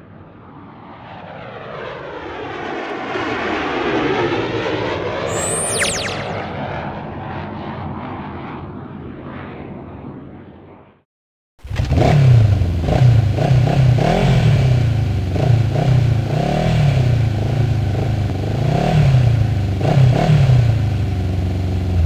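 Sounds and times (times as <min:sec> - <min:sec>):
atv engine revving: 0:11.7 - 0:22.0.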